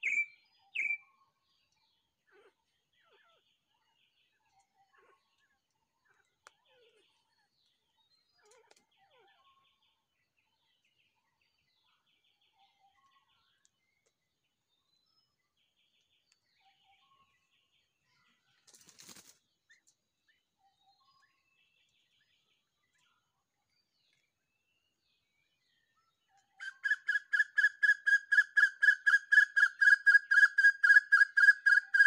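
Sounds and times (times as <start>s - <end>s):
bird whistled notes: 0.0s - 1.0s, 26.6s - 32.0s
small birds chattering trills: 0.0s - 14.2s.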